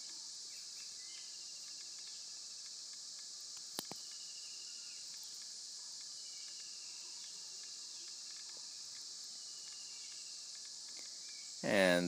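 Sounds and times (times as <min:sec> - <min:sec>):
faint chirps: 0:00.0 - 0:12.0
insects chorus: 0:00.0 - 0:12.0
sharp click: 0:03.2 - 0:04.2.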